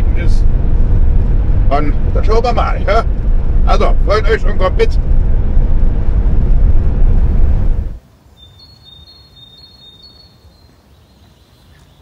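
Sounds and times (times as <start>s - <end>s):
road and engine rumble: 0.0s - 8.4s
faint high-pitched chirping: 8.3s - 12.0s.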